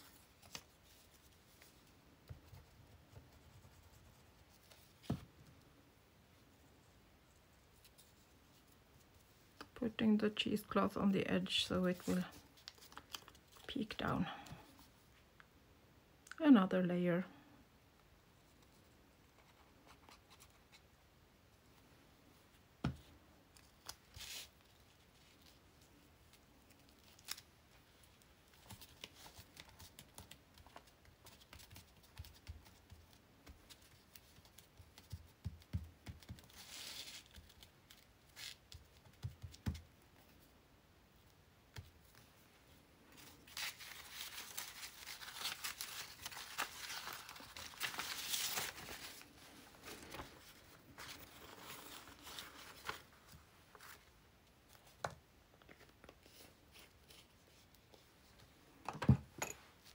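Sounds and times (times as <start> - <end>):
paper rustling: 0.0 - 5.4, 11.5 - 14.8, 23.6 - 35.3, 43.1 - 54.1.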